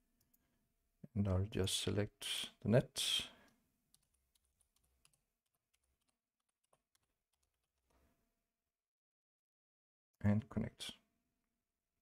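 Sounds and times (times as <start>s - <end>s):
faint keyboard typing: 3.4s - 8.0s.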